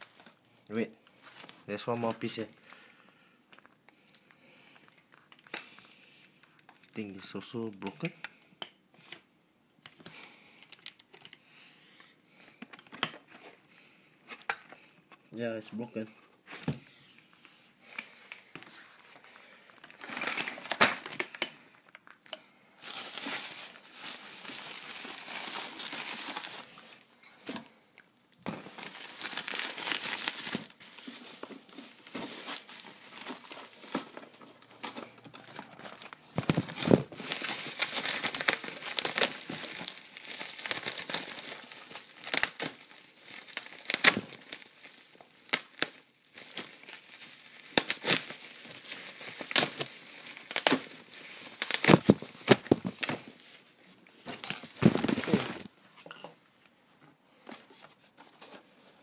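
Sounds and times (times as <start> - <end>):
packaging crinkling: 1.2 - 8.0, 10.2 - 11.4, 17.9 - 27.0, 28.4 - 55.8.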